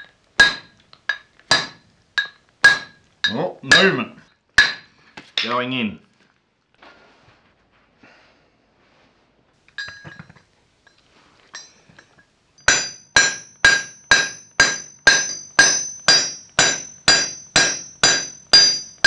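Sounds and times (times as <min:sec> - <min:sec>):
light metal clinks: 0:09.7 - 0:19.0.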